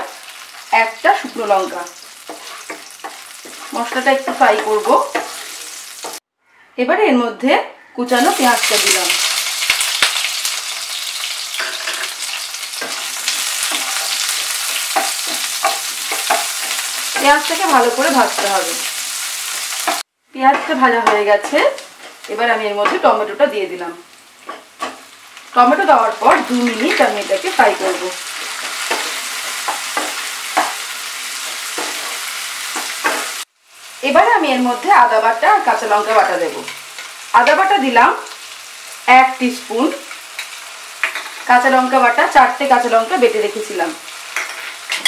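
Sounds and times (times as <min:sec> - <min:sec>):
onions sizzling in oil: 0:00.0 - 0:06.3, 0:08.1 - 0:45.0
spatula scraping pan: 0:00.2 - 0:06.2, 0:11.0 - 0:23.0, 0:26.3 - 0:33.5.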